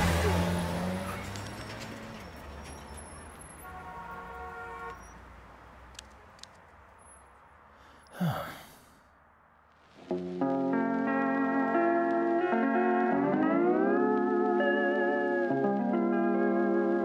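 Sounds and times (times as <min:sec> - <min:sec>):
distant city traffic rumble: 0:00.0 - 0:10.2
car horn: 0:03.2 - 0:05.2
small clicks: 0:05.9 - 0:06.7.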